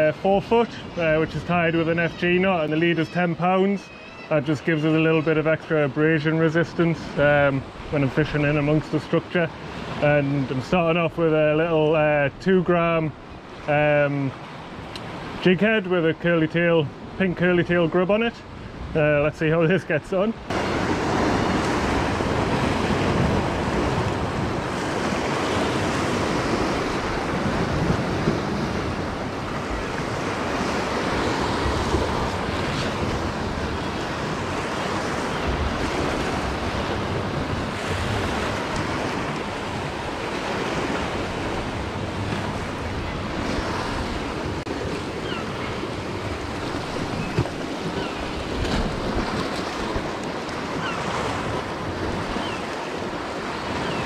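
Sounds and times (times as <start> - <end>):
sea waves breaking on rocks: 20.4 - 54.0
wind buffeting microphone: 20.5 - 54.0.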